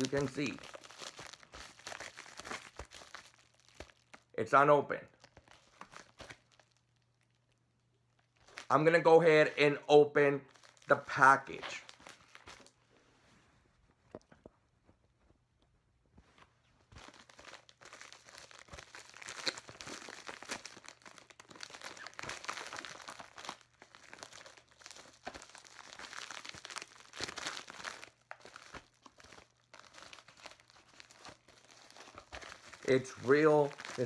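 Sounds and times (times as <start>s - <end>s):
padded envelope being torn open: 0.0s - 4.3s, 17.0s - 34.0s.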